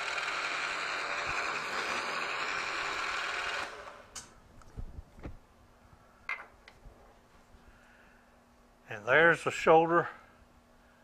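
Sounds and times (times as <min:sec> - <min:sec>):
milling machine spindle whir: 0:00.0 - 0:04.0.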